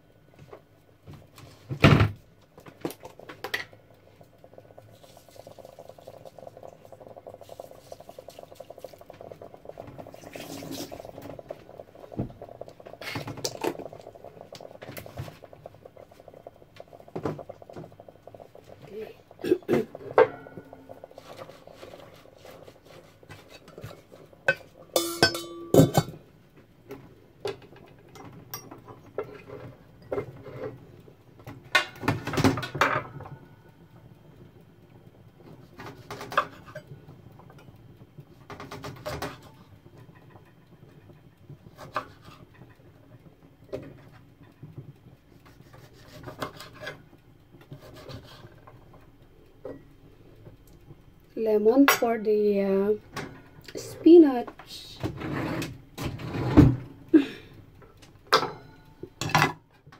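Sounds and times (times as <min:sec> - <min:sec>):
metallic lid clank: 0:24.5 - 0:26.2.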